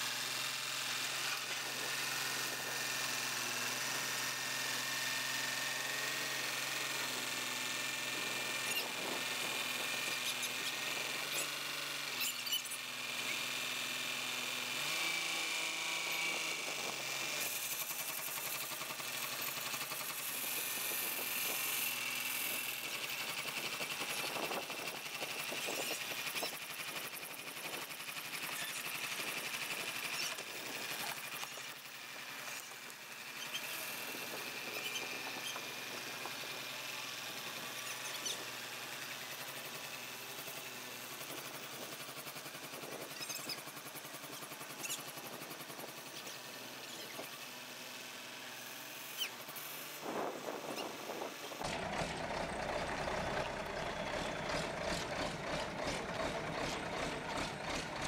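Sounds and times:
truck engine running: 0:51.6 - 0:58.0.

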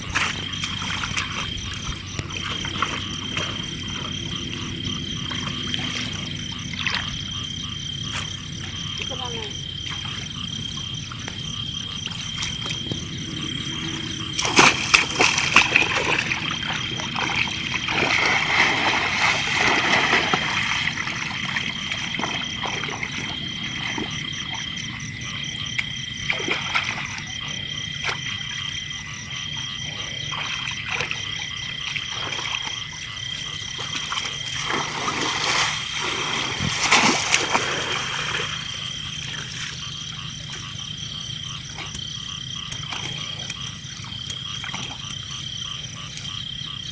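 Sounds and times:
splashing in shallow water: 0:00.0 - 0:10.4, 0:11.1 - 0:25.0, 0:25.6 - 0:46.4.

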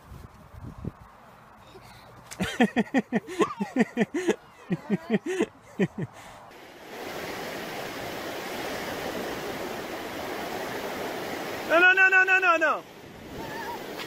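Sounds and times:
person laughing: 0:02.4 - 0:06.2
ocean surf on a beach: 0:02.6 - 0:14.0.

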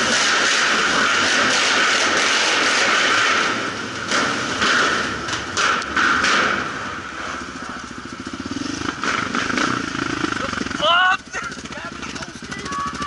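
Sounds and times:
sharp knocks and thumps: 0:00.0 - 0:06.9
quad bike engine running: 0:00.0 - 0:13.0.

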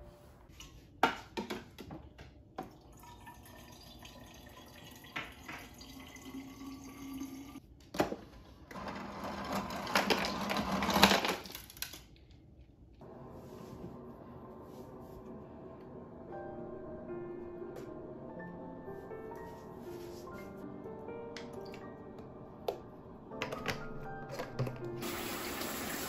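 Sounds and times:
water running: 0:02.6 - 0:07.6, 0:24.4 - 0:26.0.

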